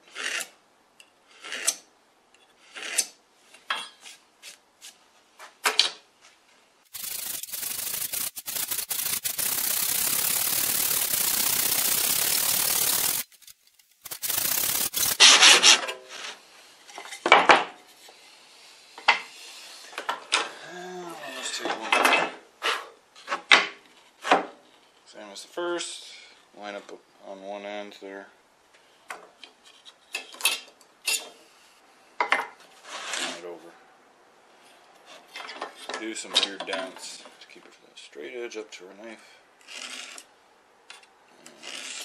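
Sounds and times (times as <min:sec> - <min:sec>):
blade scraping along steel square: 0:00.0 - 0:00.6, 0:01.3 - 0:01.9, 0:02.5 - 0:03.2, 0:06.9 - 0:16.2, 0:39.6 - 0:40.3, 0:41.4 - 0:42.0
hand saw cutting board: 0:01.4 - 0:01.8, 0:07.0 - 0:15.8, 0:41.4 - 0:42.0.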